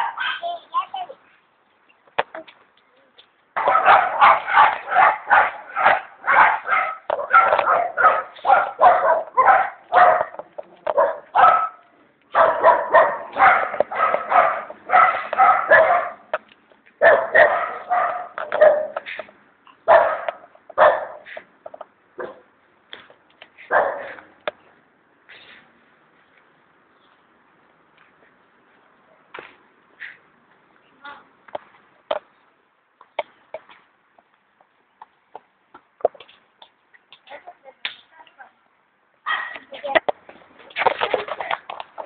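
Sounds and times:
dog barking rapidly: 0:00.0 - 0:00.5, 0:03.6 - 0:16.3, 0:17.0 - 0:19.2, 0:19.8 - 0:21.3, 0:23.7 - 0:24.2.

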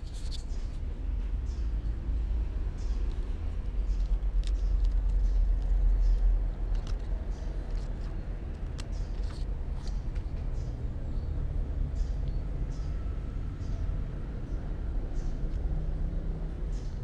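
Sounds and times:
small clicks: 0:02.8 - 0:10.7.

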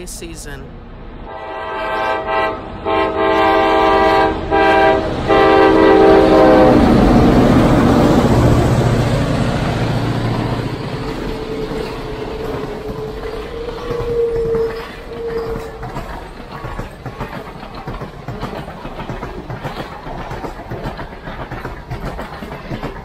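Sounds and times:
diesel locomotive rumble: 0:00.0 - 0:23.0
locomotive air horn: 0:01.3 - 0:07.0
train wheels clattering on rails: 0:04.6 - 0:23.0.

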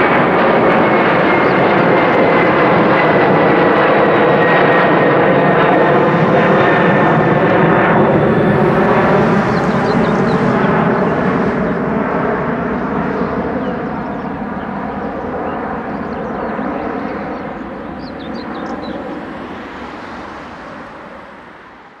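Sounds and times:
jet engines rumbling: 0:00.0 - 0:22.0.

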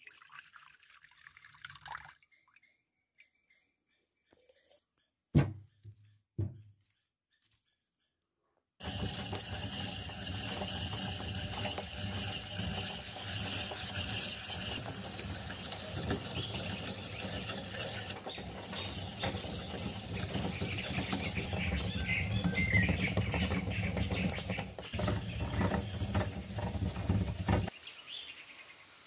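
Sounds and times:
coconut grater rasping: 0:08.8 - 0:27.7.

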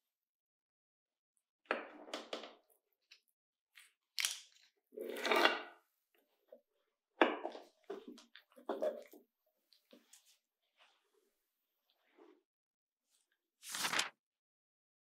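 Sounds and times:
baking paper rustling: 0:13.6 - 0:14.1.

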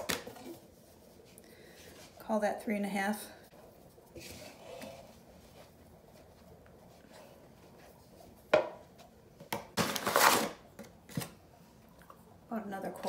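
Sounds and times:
handling dough in a bowl: 0:00.0 - 0:09.4.

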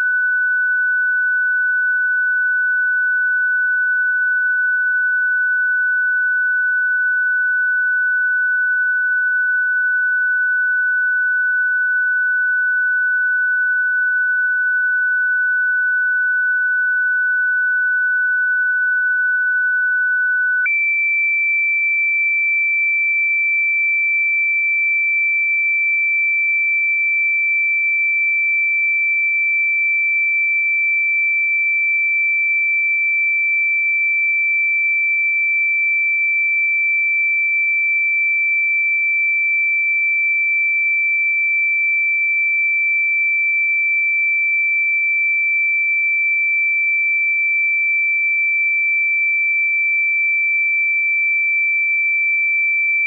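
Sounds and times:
high-pitched sine tone: 0:00.0 - 0:21.0.

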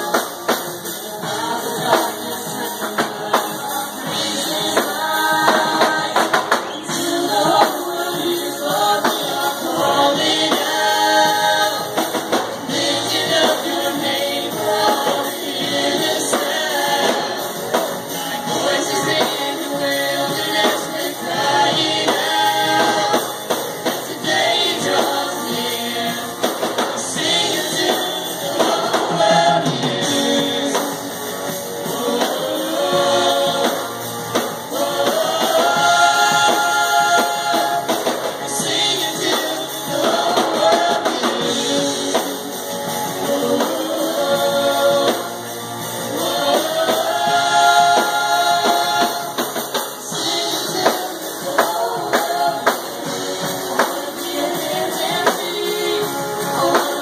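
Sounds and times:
drum kit: 0:00.0 - 0:57.0
guitar: 0:00.0 - 0:57.0
keyboards: 0:00.0 - 0:57.0
voices singing: 0:00.0 - 0:57.0.

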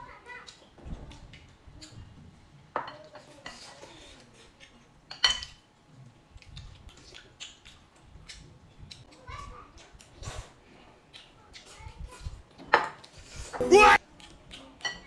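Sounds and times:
chopsticks clicking against bowls: 0:06.4 - 0:10.1.

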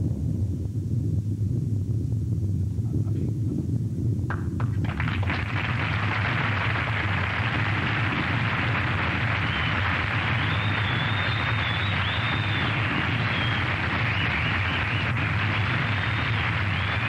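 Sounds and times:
bomb blast roaring rumble: 0:00.0 - 0:17.0
thin wavering high whistle: 0:09.4 - 0:15.2.

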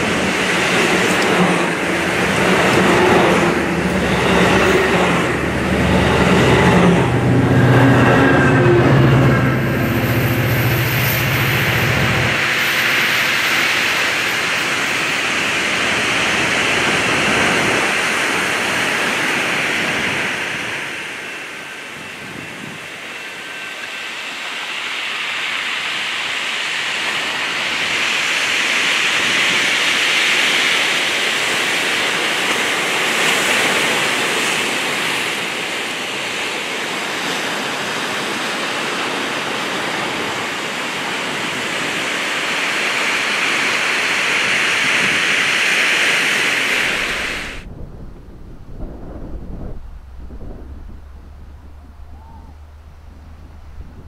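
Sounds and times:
ocean surf washing against rocks: 0:00.0 - 0:08.8, 0:25.2 - 0:54.0.

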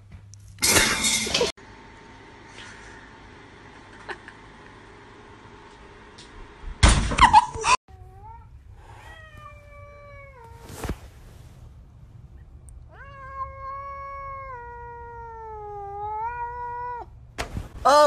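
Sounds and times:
cat yowling: 0:12.9 - 0:17.1.

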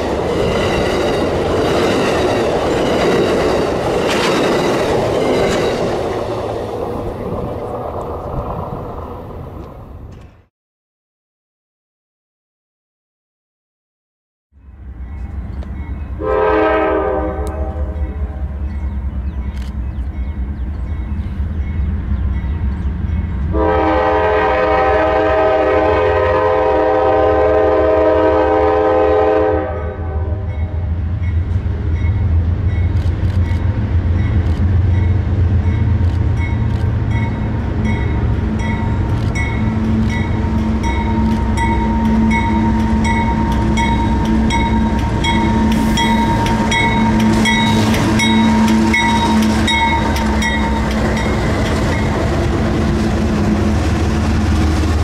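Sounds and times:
wheels clicking over rail joints: 0:00.0 - 0:10.4
locomotive engine rumble: 0:00.0 - 0:10.5, 0:30.4 - 0:55.0
train air horn blast: 0:16.2 - 0:18.6, 0:23.5 - 0:30.7, 0:40.8 - 0:51.2.

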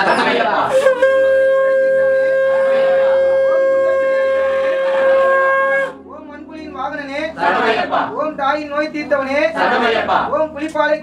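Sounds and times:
conch shell blown: 0:00.6 - 0:06.1.

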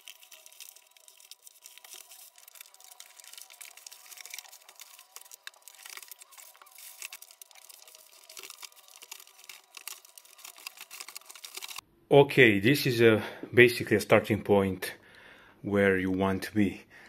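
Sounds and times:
plastic film and cardboard crinkling: 0:00.0 - 0:11.8.

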